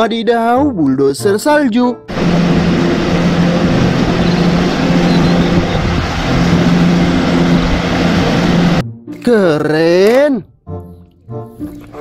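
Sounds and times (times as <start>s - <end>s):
diesel engine running under load: 2.1s - 8.8s.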